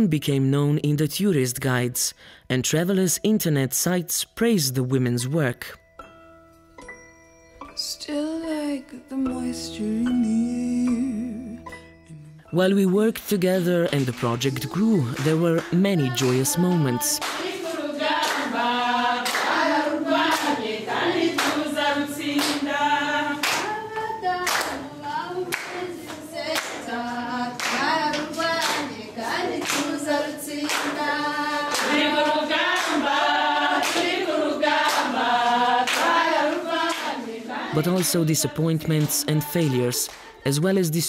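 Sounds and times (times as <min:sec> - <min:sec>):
hands clapping: 0:13.8 - 0:18.6, 0:19.2 - 0:20.6, 0:21.2 - 0:21.7, 0:22.3 - 0:22.8, 0:23.4 - 0:23.8, 0:24.4 - 0:24.8, 0:25.5 - 0:26.9, 0:27.6 - 0:35.2, 0:35.8 - 0:37.2, 0:37.8 - 0:40.7
women singing in chorus: 0:14.4 - 0:40.4.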